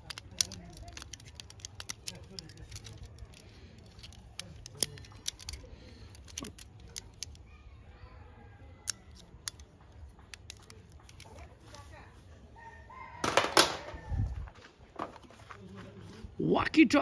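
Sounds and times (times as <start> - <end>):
plastic toy handcuffs clicking: 0.0 - 7.4, 8.8 - 11.8.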